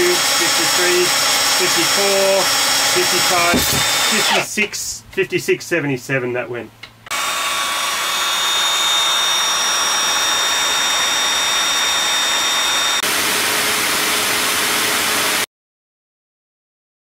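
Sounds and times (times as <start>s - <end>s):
belt sander whining against rope: 0.0s - 4.5s, 7.1s - 15.4s
electric drill grinding rope: 0.0s - 4.5s, 7.1s - 15.5s.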